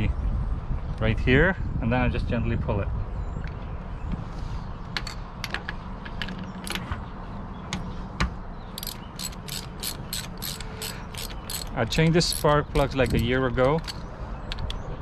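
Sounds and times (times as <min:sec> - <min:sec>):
metal clicks and clinks: 0:08.8 - 0:14.8
ratchet clicking: 0:08.8 - 0:14.8.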